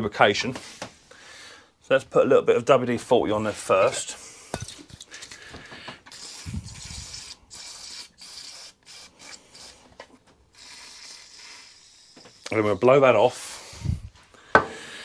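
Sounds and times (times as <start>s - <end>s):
aerosol spray hissing bursts: 6.1s - 9.9s, 10.6s - 12.8s.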